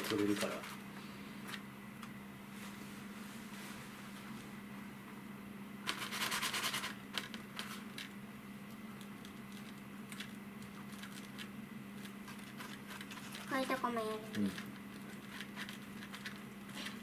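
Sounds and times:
light scratches and clicks: 0:09.0 - 0:17.0.

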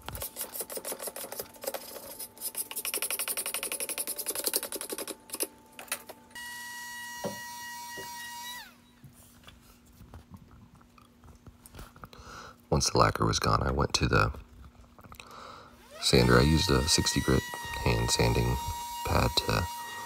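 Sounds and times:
small power tool whining: 0:06.4 - 0:08.8, 0:15.8 - 0:20.0
hand scraper stripping wood: 0:16.0 - 0:20.0.

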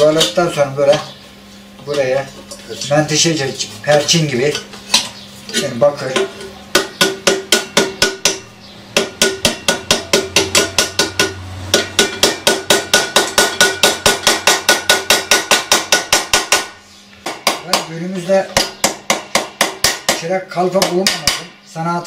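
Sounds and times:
hammer striking copper jug: 0:06.1 - 0:17.9, 0:18.5 - 0:21.5.

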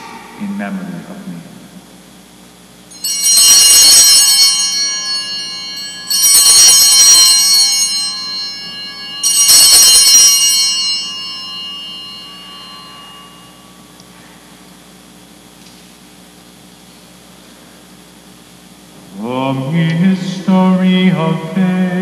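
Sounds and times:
altar bells ringing: 0:02.9 - 0:14.0.

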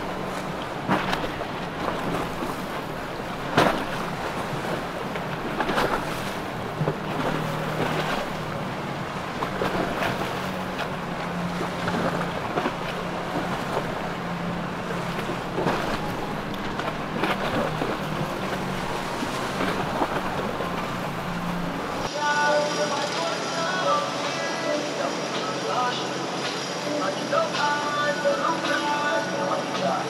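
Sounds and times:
sharp knocks or splashes: 0:00.0 - 0:22.1
boat engine droning: 0:00.0 - 0:30.0
water wash: 0:00.0 - 0:30.0.

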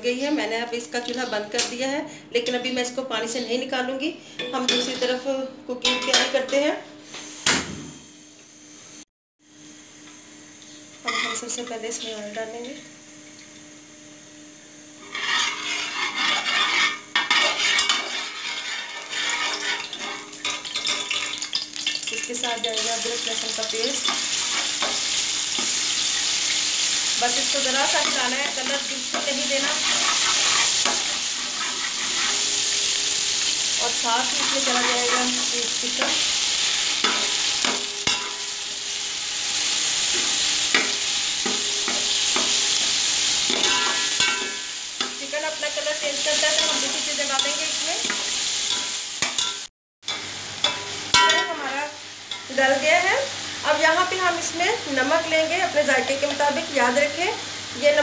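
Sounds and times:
chicken sizzling in hot oil: 0:08.6 - 0:58.0
metal ladle scraping a pot: 0:15.0 - 0:21.0
metal spatula scraping pot: 0:15.0 - 0:21.3, 0:27.8 - 0:32.7, 0:34.2 - 0:36.2.

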